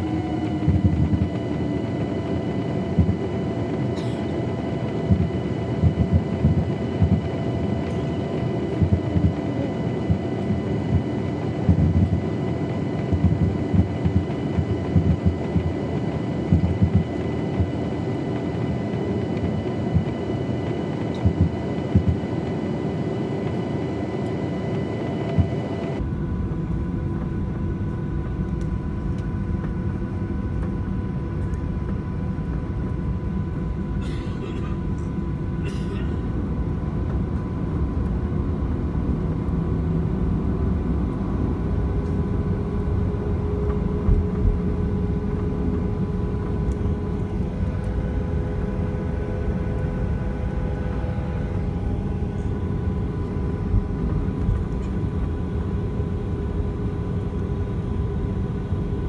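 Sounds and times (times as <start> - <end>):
airplane engine rumble: 0.0 - 59.0
irregular low thumps: 5.1 - 7.3, 13.1 - 14.2, 14.9 - 15.7, 16.5 - 17.8.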